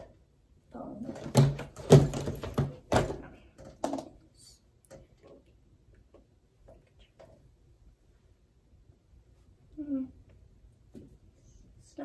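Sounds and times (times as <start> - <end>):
books knocking on a desk: 1.2 - 3.3.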